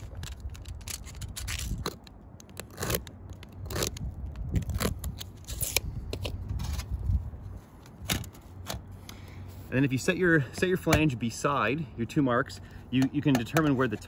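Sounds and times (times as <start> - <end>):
knife scraping gritty shingle: 0.0 - 7.2.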